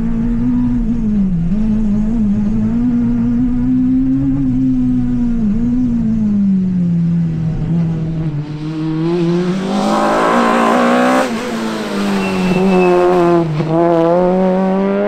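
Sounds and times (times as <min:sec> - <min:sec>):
rally car engine revving: 0:06.9 - 0:15.0.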